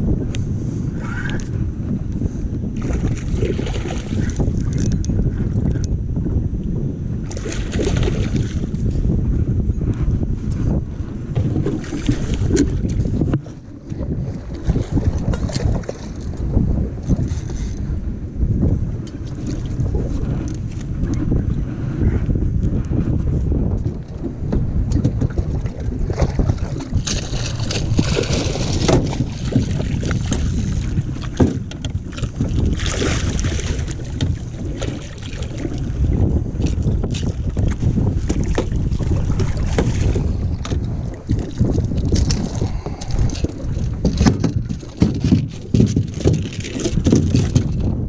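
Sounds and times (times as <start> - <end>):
wind buffeting microphone: 0.0 - 48.0
knocks on boat: 26.2 - 30.6, 31.2 - 32.7, 36.7 - 40.8, 44.0 - 47.9.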